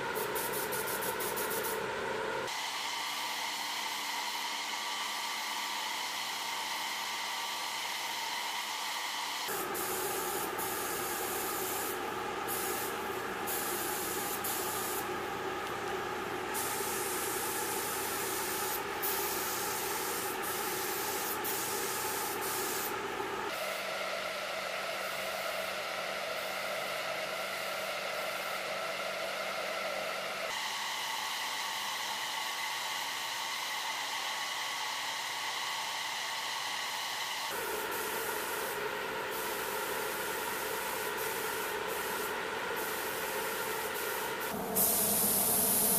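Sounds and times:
paint spray guns hissing: 0:00.2 - 0:01.8, 0:09.4 - 0:23.8, 0:37.5 - 0:45.9.

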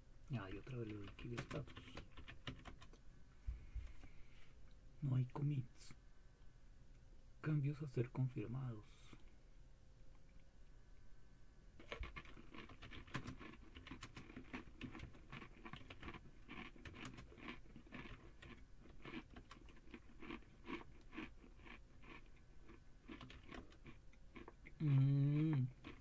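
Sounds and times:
faint typing on keyboard: 0:00.3 - 0:03.0, 0:11.8 - 0:20.8, 0:22.0 - 0:26.0.

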